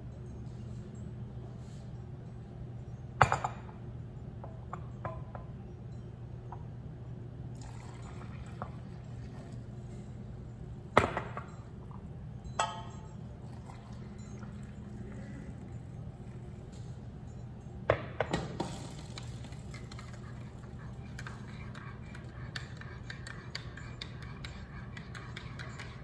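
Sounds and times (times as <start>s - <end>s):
water pouring into mug: 7.6s - 9.7s, 13.4s - 16.5s
spoons clinking against mugs: 7.6s - 26.0s.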